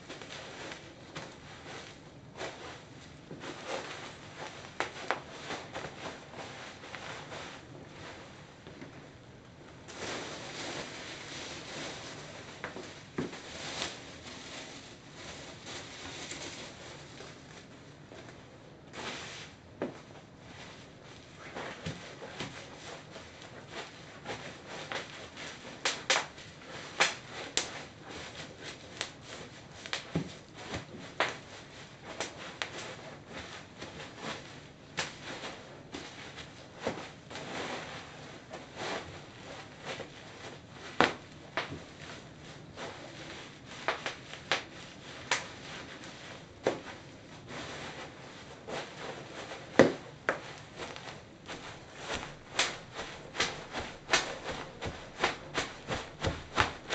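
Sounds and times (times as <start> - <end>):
bubble wrap crinkling underfoot: 0.0 - 56.9
bubble wrap popping: 23.6 - 31.5, 40.9 - 42.0, 43.6 - 47.2, 49.2 - 56.9.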